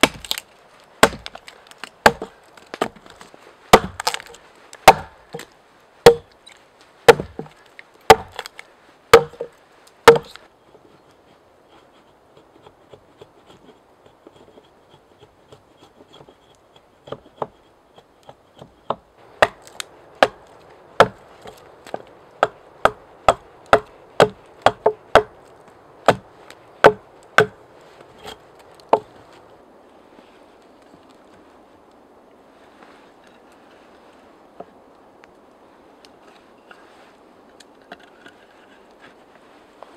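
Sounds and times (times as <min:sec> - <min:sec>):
axe chopping log: 0:00.0 - 0:00.4, 0:01.0 - 0:06.3, 0:07.1 - 0:10.4, 0:18.6 - 0:27.6.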